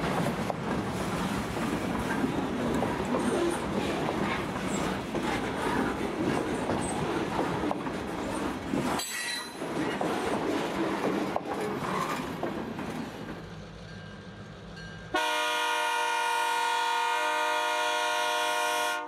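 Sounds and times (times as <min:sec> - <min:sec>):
freight train wheels clattering: 0:00.0 - 0:15.1
locomotive air horn: 0:15.1 - 0:19.0.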